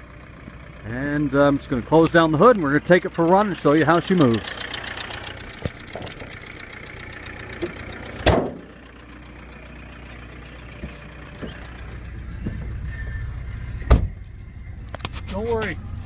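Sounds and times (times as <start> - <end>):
diesel engine idling with ticking: 0.0 - 16.0
car hood slamming shut: 8.2 - 8.7, 13.8 - 14.2.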